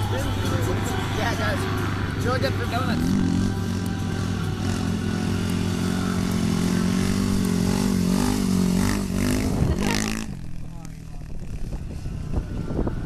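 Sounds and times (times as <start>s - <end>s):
quad engine revving: 2.6s - 12.7s.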